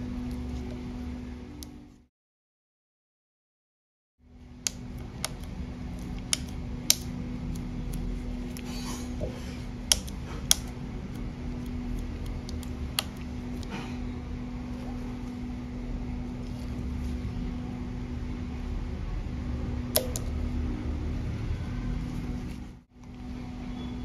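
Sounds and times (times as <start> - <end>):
low hum: 0.0 - 2.1, 4.2 - 24.0
sharp plastic clicks: 4.6 - 8.7, 9.8 - 13.7, 19.9 - 20.4.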